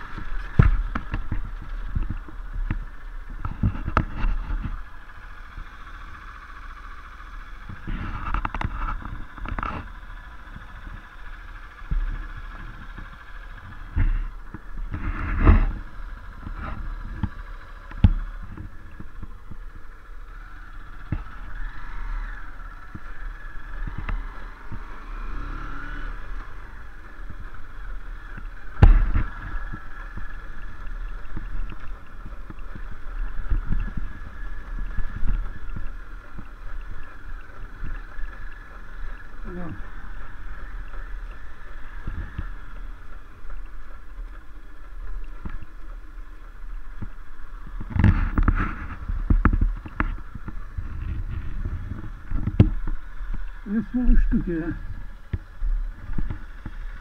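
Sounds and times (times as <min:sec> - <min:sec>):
loud thumps from bumps: 0:00.0 - 0:04.8, 0:28.3 - 0:36.9
low wind rumble: 0:00.0 - 0:57.0
motorcycle engine revving: 0:00.0 - 0:57.0.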